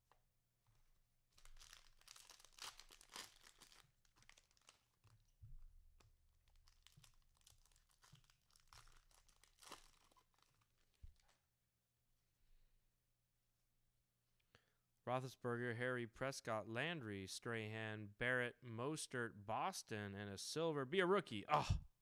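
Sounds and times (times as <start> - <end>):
cellophane wrapper crinkling: 1.3 - 11.4.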